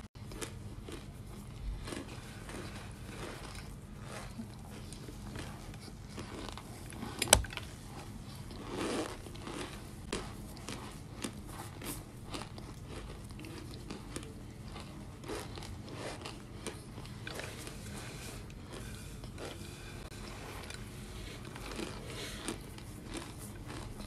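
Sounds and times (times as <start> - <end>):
crunchy food chewing: 0.2 - 24.0.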